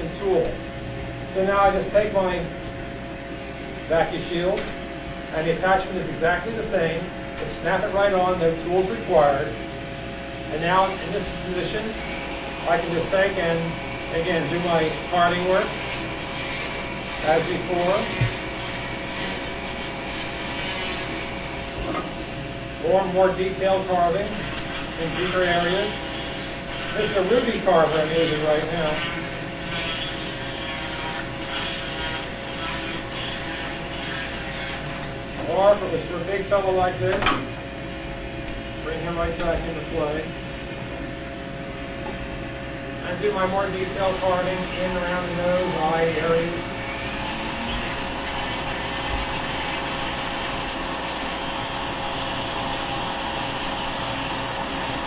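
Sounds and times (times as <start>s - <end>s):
vacuum drawing air: 0.0s - 29.6s
motor whine: 0.0s - 55.0s
bur grinding wood: 14.2s - 22.2s, 24.0s - 35.6s, 43.1s - 55.0s.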